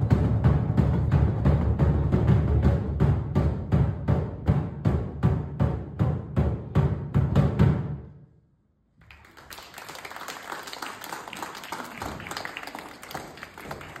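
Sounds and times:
children clapping: 0:09.0 - 0:14.0.

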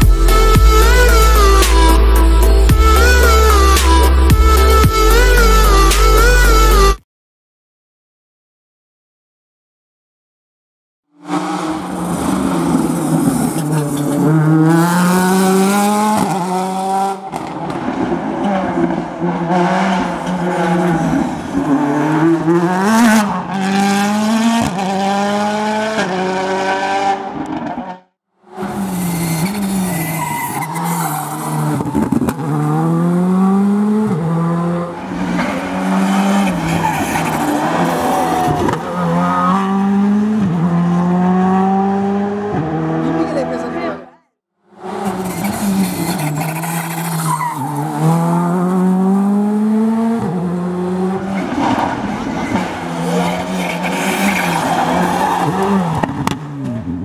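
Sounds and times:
rally car engines revving: 0:11.2 - 0:44.1, 0:44.7 - 0:57.0.

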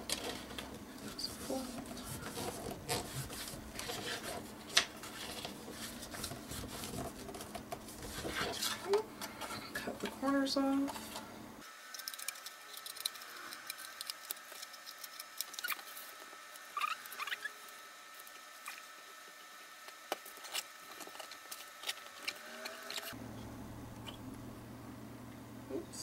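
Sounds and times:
paper rustling: 0:00.0 - 0:08.9
short squeaks: 0:16.7 - 0:17.6.

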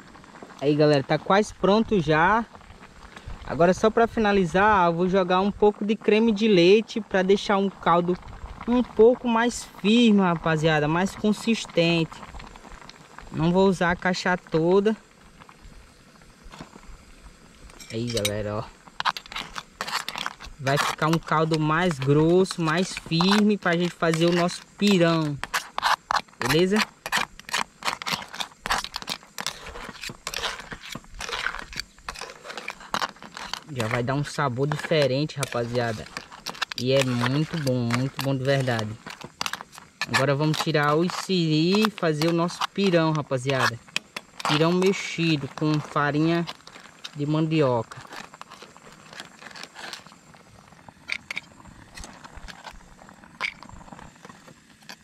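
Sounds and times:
stew bubbling with pops and crackles: 0:00.0 - 0:55.0
crabs clicking against pot: 0:17.6 - 0:55.0.

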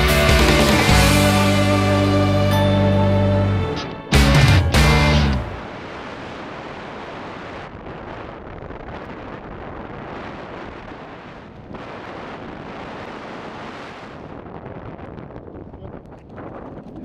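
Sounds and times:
wind rushing over microphone: 0:05.4 - 0:17.0.

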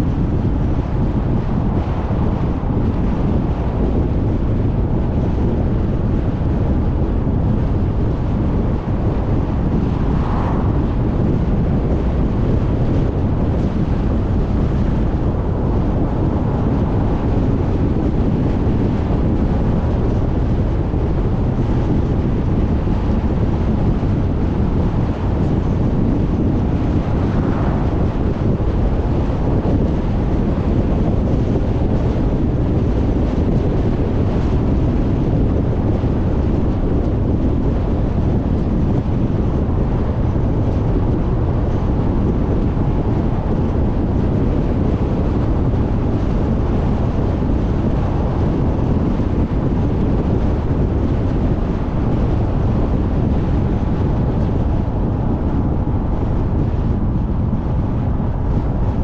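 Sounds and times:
car road noise: 0:00.0 - 0:59.0
wind rumble on microphone: 0:00.0 - 0:59.0.

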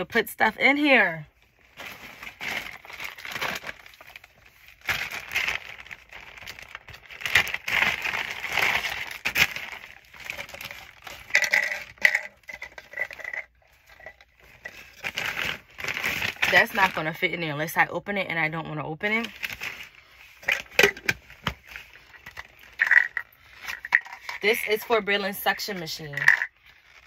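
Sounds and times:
plastic wrapping crinkling: 0:01.4 - 0:17.2, 0:19.2 - 0:27.0
hard plastic clinks and knocks: 0:11.2 - 0:14.2, 0:22.3 - 0:24.4.

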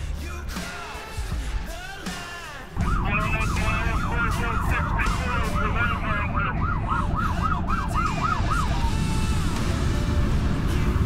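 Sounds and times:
siren yelping: 0:02.8 - 0:09.7
vehicle rumbling on road: 0:02.8 - 0:11.0.

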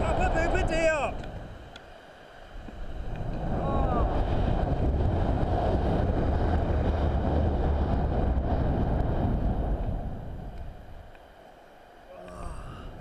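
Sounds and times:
wind rushing over microphone: 0:00.0 - 0:01.8, 0:02.4 - 0:11.4.

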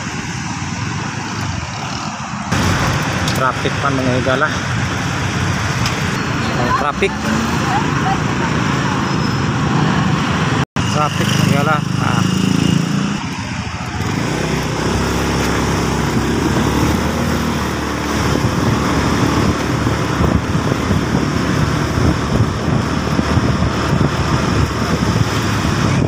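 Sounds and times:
road and wind noise: 0:00.0 - 0:26.0
motorcycle engine running: 0:10.8 - 0:26.0.

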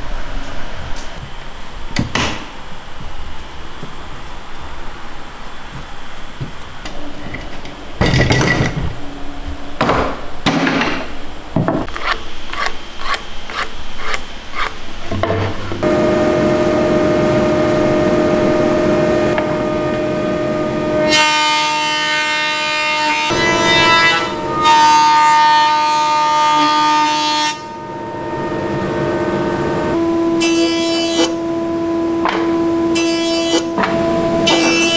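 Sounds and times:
woodworking machine whine: 0:15.0 - 0:34.9.

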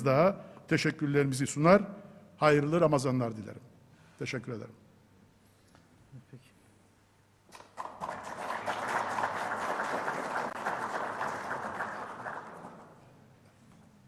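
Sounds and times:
audience applause: 0:07.7 - 0:13.0.

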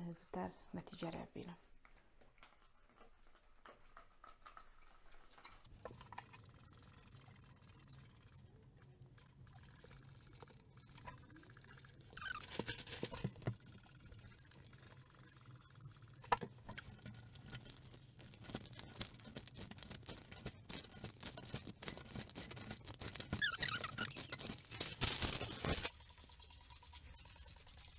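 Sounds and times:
spray bottle squirting: 0:05.8 - 0:08.4
rustling and clicks: 0:16.1 - 0:25.9.

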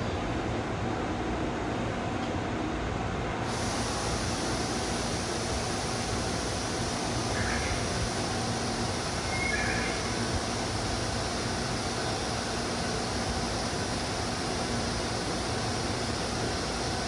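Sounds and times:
electric train equipment humming: 0:00.0 - 0:17.0
higher hiss: 0:03.4 - 0:17.0.

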